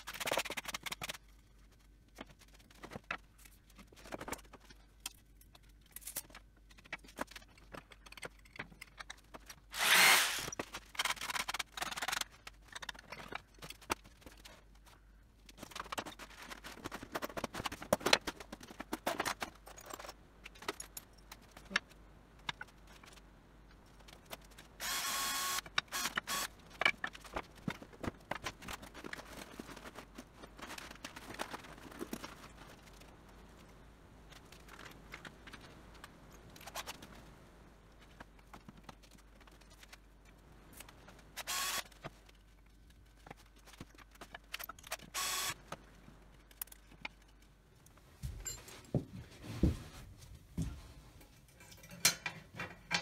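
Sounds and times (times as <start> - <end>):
power tool running: 9.7 - 10.5, 24.8 - 26.5, 41.5 - 41.8, 45.2 - 45.5.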